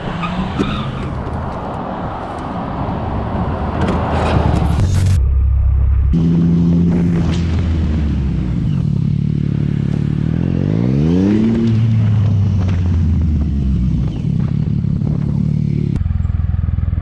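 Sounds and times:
motorcycle engine revving: 0:06.1 - 0:17.0.

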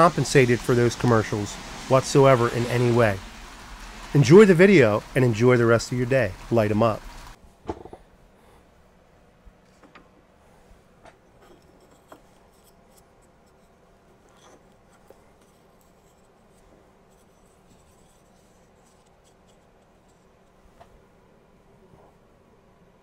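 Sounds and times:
faint steady hum: 0:03.0 - 0:23.0
rubbing sounds: 0:11.7 - 0:20.8.

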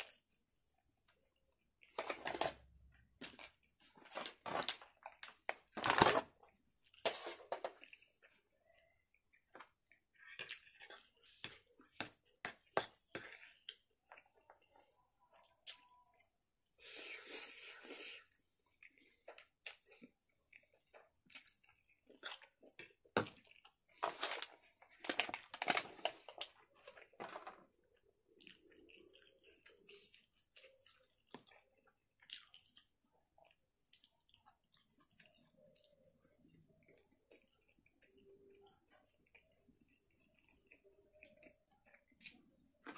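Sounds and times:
chewing and wet smacking: 0:07.8 - 0:16.4, 0:18.2 - 0:27.2, 0:27.8 - 0:42.9.

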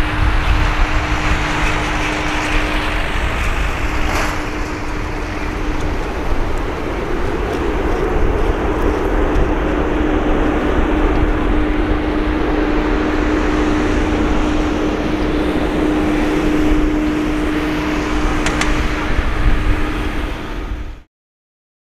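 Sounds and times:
jet engines in reverse thrust: 0:00.0 - 0:21.1.

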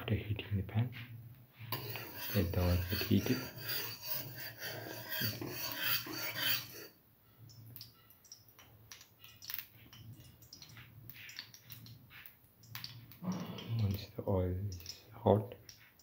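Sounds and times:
metal ladle scraping steel pan: 0:01.6 - 0:07.0
faint clicks and ticks: 0:07.4 - 0:16.0.

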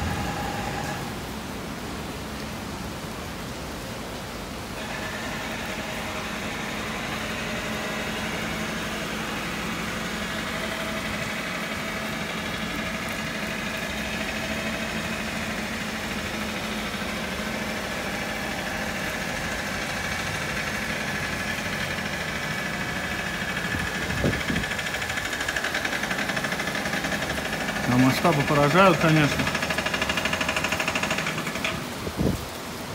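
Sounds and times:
engine-like machine hum: 0:00.0 - 0:02.0, 0:04.4 - 0:32.1.

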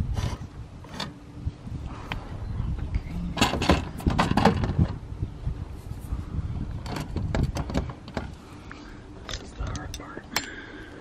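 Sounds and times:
wind rumbling on microphone: 0:00.0 - 0:10.3
metal panel clunks and rattles: 0:03.3 - 0:05.0, 0:06.8 - 0:08.4.

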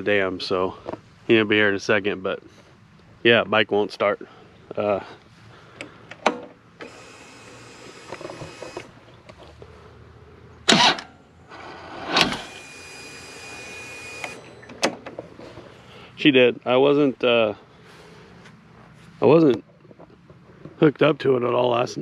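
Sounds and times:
electric starter cranking engine: 0:06.8 - 0:09.0, 0:10.7 - 0:14.9.

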